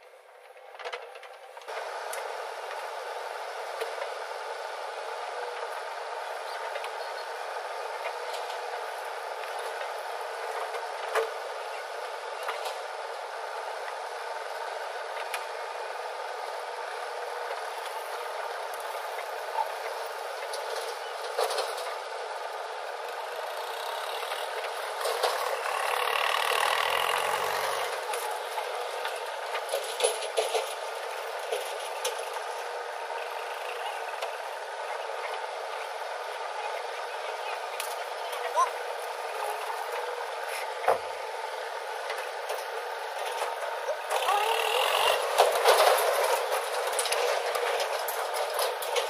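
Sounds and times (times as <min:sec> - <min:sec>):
diesel engine running: 0:00.0 - 0:49.0.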